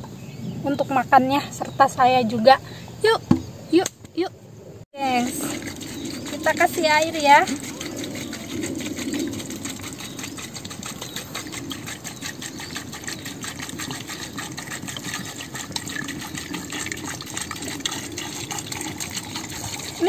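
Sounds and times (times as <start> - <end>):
water pouring onto nuts in a pot: 5.0 - 20.0.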